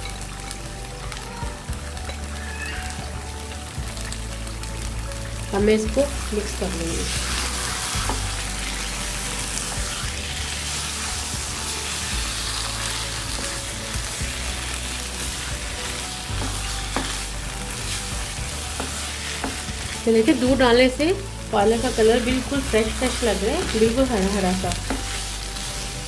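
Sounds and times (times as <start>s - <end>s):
oil sizzling: 0.0s - 26.0s
spatula stirring in pan: 7.0s - 20.4s.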